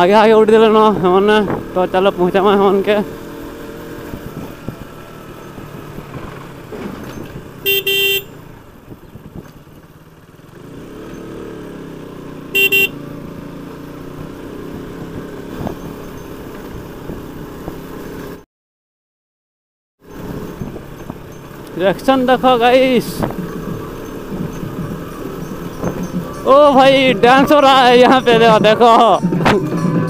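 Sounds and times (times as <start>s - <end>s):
motorcycle engine running: 0.0s - 18.4s, 20.0s - 30.0s
road noise: 0.0s - 18.5s, 20.0s - 30.0s
motorcycle horn beeping: 7.6s - 8.5s, 12.5s - 13.1s.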